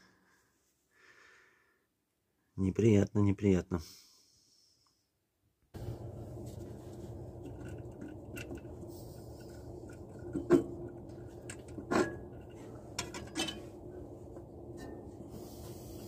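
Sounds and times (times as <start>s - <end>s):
steady low hum: 5.8s - 16.0s
wrench clinking on metal bolts: 11.4s - 13.7s.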